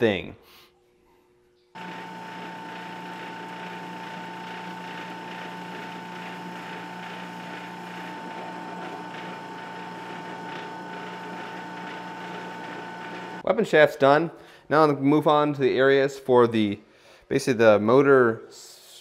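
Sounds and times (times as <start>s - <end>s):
drill press motor whining: 1.8s - 13.4s.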